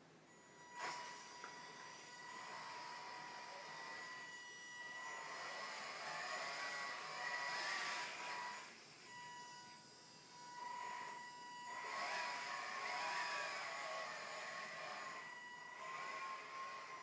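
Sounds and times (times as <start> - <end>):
electric motor whining: 0.4 - 17.0.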